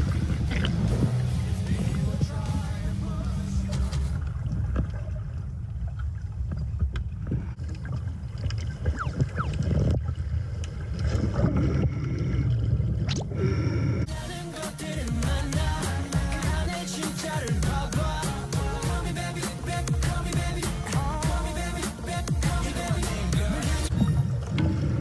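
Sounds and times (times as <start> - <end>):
music: 0.0 - 4.2, 14.1 - 24.4
low underwater rumble: 0.0 - 14.1
rising bubbling sounds: 0.0 - 14.1.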